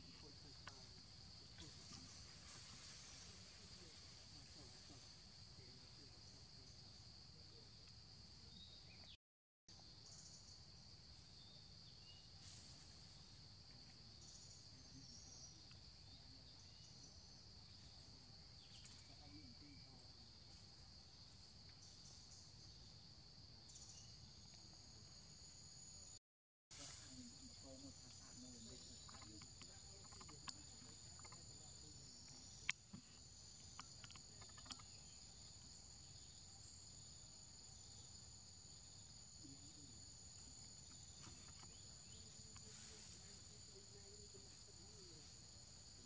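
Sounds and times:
faint bird chirps: 0:09.9 - 0:23.0, 0:26.8 - 0:46.0.

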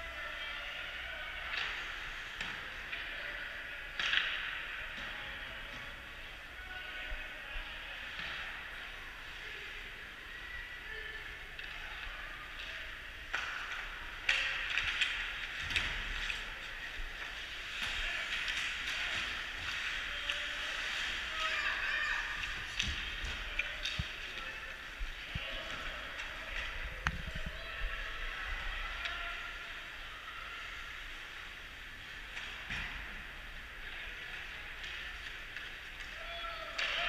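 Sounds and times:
hockey sticks and puck clacking: 0:03.9 - 0:06.2, 0:11.6 - 0:27.2, 0:34.3 - 0:37.0.

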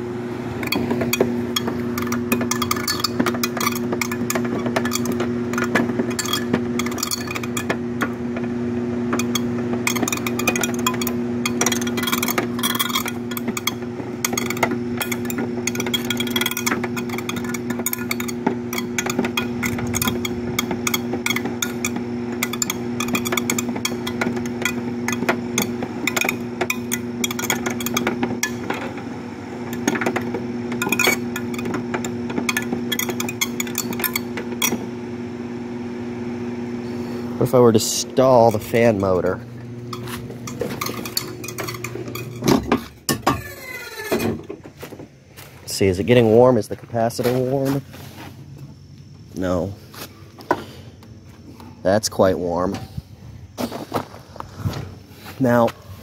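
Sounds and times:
fan motor electrical hum: 0:00.0 - 0:56.0
rapid clicks and rattles: 0:00.6 - 0:08.5, 0:09.1 - 0:29.0, 0:29.7 - 0:34.8, 0:38.4 - 0:42.9.

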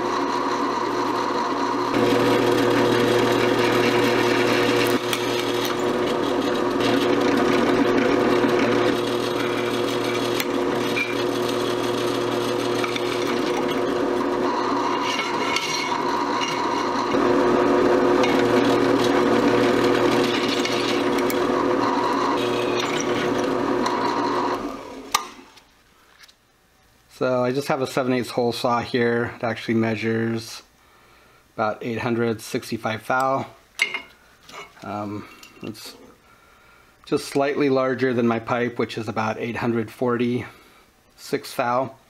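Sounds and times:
drill press drilling metal: 0:00.0 - 0:25.4.

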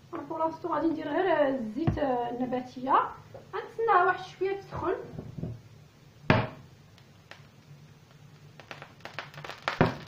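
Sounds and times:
frying pan knock: 0:06.3 - 0:06.6, 0:09.8 - 0:10.0.

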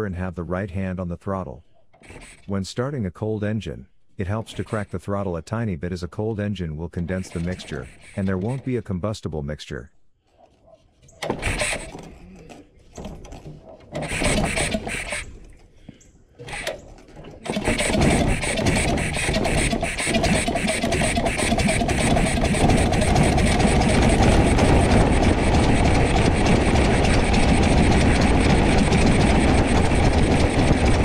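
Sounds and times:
propeller engine starting and running: 0:11.2 - 0:15.7, 0:16.4 - 0:31.0.

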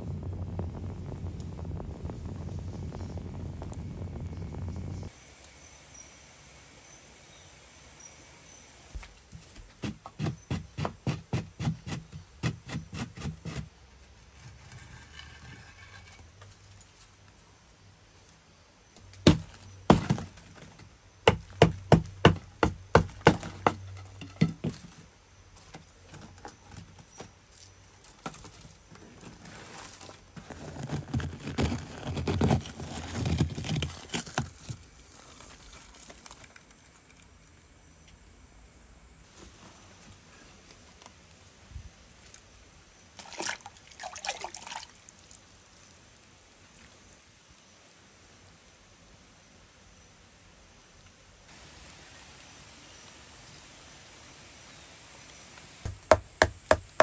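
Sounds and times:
clay scraping and crumbling: 0:09.3 - 0:17.2, 0:19.2 - 0:37.5
wooden stick knocking on clay: 0:55.9 - 0:57.0.

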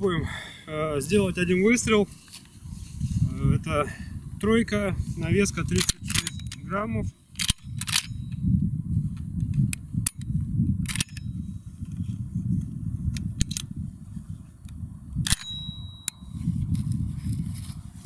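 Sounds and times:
steady low rumble: 0:00.0 - 0:18.0
shotgun metallic clicks: 0:05.7 - 0:06.6, 0:07.3 - 0:08.4, 0:09.5 - 0:11.3, 0:15.2 - 0:16.2.

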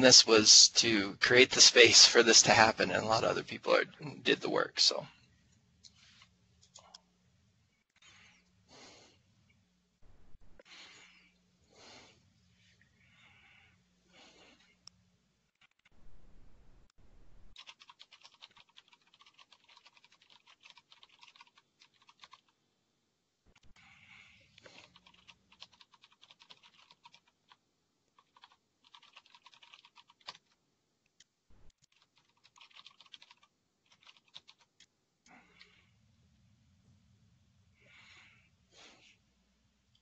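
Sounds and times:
faint keyboard typing: 0:17.5 - 0:22.6, 0:24.5 - 0:35.8.

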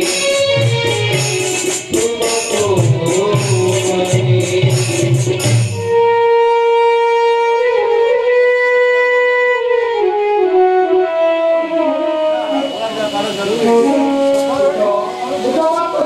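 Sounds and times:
drum: 0:00.0 - 0:05.9, 0:12.4 - 0:16.0
reedy wind instrument melody: 0:05.7 - 0:16.0
jingling cymbals: 0:12.3 - 0:16.0.

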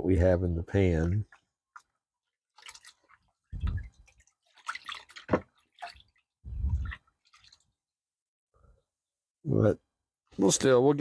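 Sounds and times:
water sloshing in a pan: 0:01.3 - 0:07.9.

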